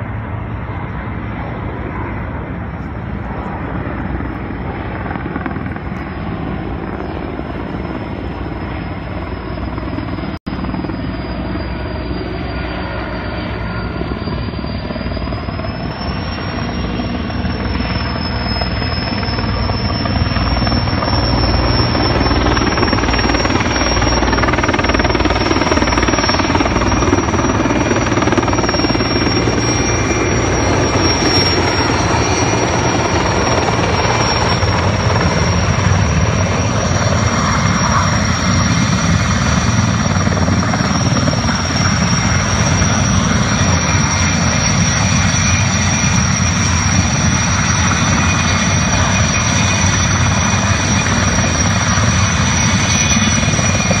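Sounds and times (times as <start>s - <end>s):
helicopter rotor and engine noise: 0.0s - 54.0s
high turbine whine: 0.0s - 54.0s.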